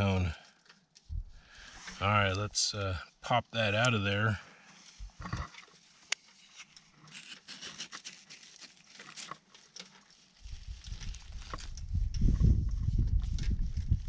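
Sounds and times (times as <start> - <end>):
knife scraping rock: 7.0 - 9.4.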